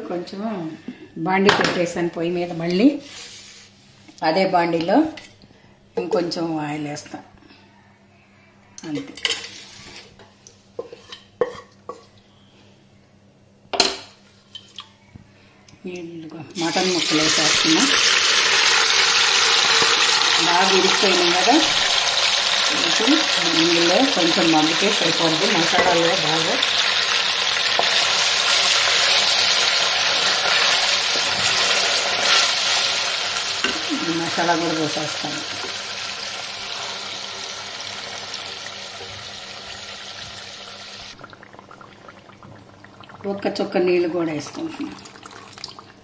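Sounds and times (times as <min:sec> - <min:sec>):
meat sizzling in hot oil: 0:16.6 - 0:41.2.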